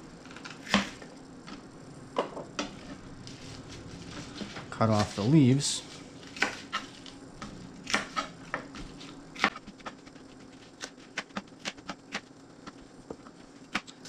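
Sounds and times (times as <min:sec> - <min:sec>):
knife chopping on cutting board: 0:06.3 - 0:06.9, 0:07.8 - 0:10.0.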